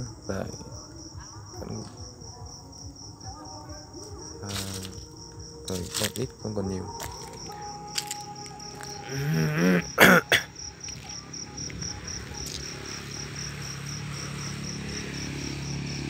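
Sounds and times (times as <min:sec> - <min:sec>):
crickets chirping: 0:00.0 - 0:16.0
person coughing: 0:09.2 - 0:10.6.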